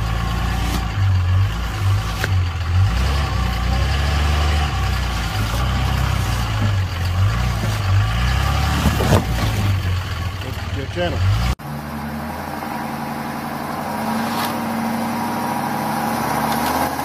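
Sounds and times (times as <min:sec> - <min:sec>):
truck engine revving under load: 0:00.0 - 0:17.0.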